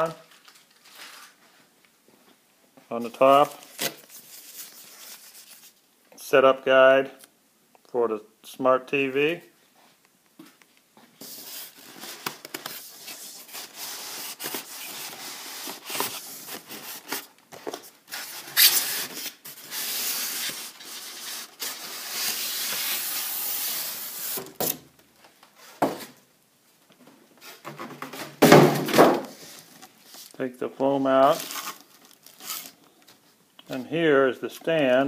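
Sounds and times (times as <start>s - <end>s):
styrofoam scraping against cardboard: 11.2s - 17.3s, 18.1s - 24.5s.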